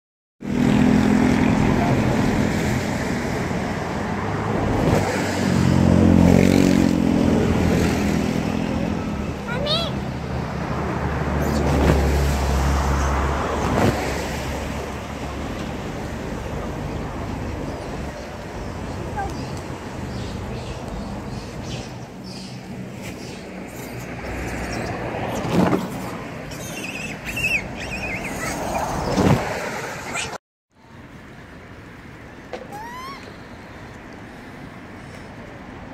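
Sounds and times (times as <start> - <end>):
road traffic noise: 0.4 - 35.9
bird warbling call: 26.5 - 28.8.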